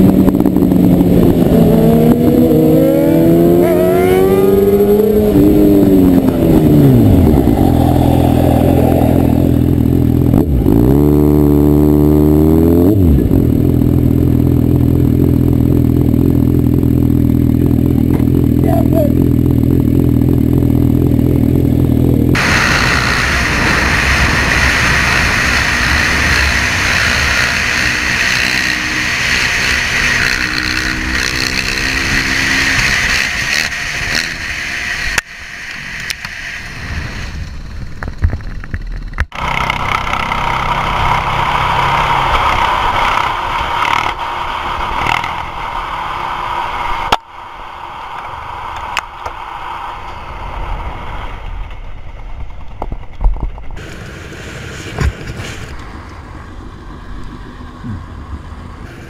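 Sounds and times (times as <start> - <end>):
wind rush on helmet: 0.0 - 3.2, 4.1 - 10.7, 22.3 - 59.0
motorcycle engine revving: 0.0 - 35.2, 39.2 - 45.8.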